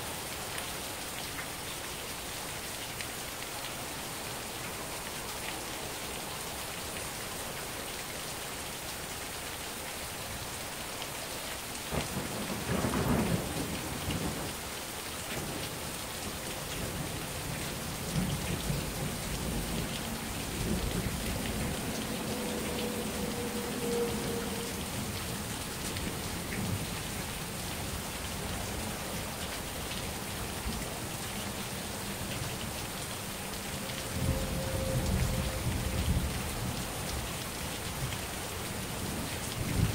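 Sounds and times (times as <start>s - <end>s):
heavy rain falling: 0.0s - 39.9s
thunder rumbling: 18.0s - 27.0s.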